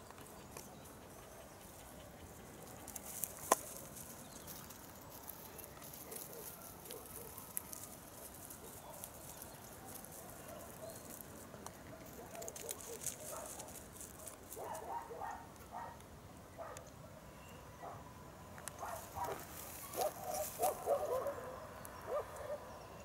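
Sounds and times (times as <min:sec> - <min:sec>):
crackling clicks: 0:02.6 - 0:14.8
distant dogs barking: 0:04.6 - 0:23.0.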